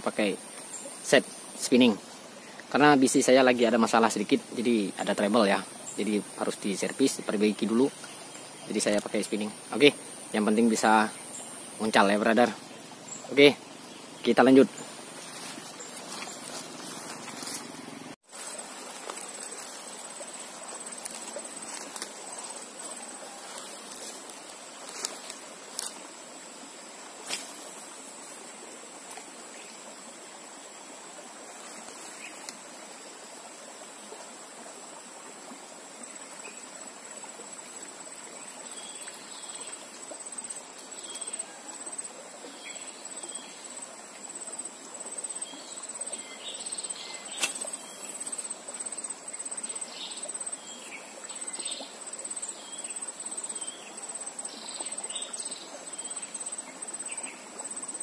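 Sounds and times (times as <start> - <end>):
fast-flowing stream water: 0.0 - 27.2
high insect drone: 0.0 - 58.0.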